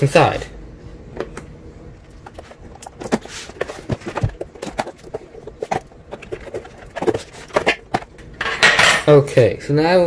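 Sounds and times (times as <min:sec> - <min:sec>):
cardboard box being handled: 0:02.2 - 0:08.1.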